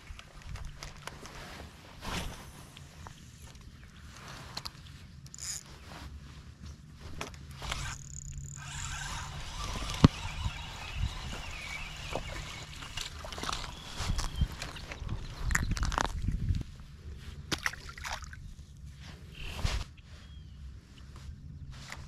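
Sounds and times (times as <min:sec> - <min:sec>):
fishing reel whirring: 0:05.3 - 0:05.6, 0:07.7 - 0:14.3
fishing reel click: 0:07.7 - 0:12.6.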